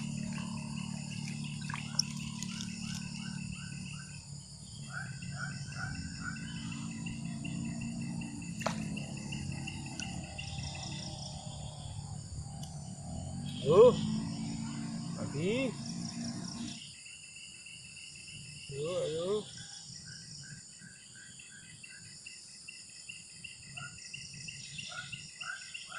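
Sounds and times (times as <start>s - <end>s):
insects chirping: 0.0s - 25.9s.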